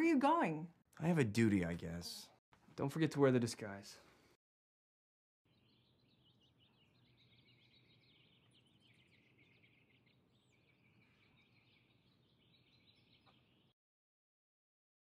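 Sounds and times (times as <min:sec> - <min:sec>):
small birds chirping: 0:05.5 - 0:13.8.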